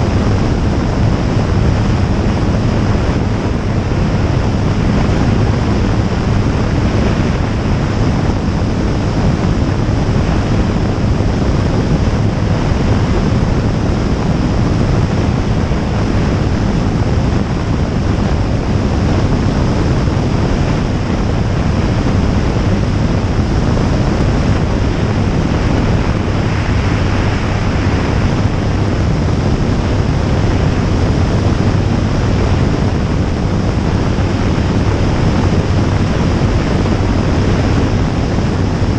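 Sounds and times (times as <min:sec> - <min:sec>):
light aircraft engine and propeller: 0:00.0 - 0:38.9
wind rushing on microphone: 0:00.0 - 0:38.9.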